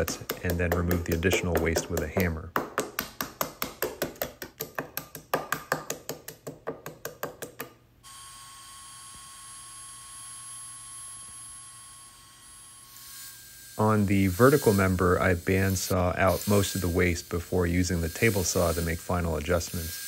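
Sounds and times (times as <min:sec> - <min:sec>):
small hammer tapping quickly: 0:00.0 - 0:07.8.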